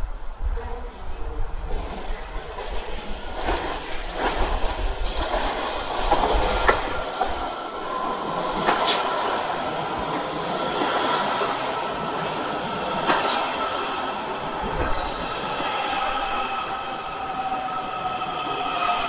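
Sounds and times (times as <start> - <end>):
train rumble: 0.0 - 19.0.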